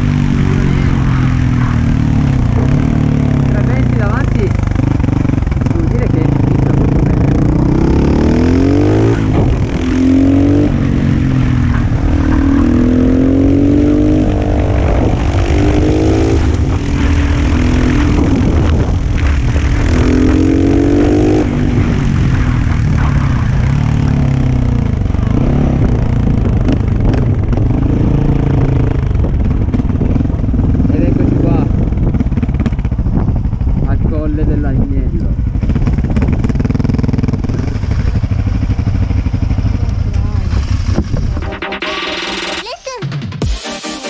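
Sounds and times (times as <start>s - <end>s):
motorcycle engine accelerating: 0.0s - 43.5s.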